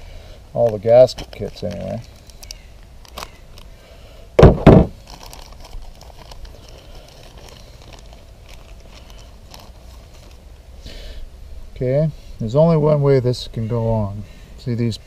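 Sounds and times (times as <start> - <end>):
faint plastic rustling: 0.5 - 10.9.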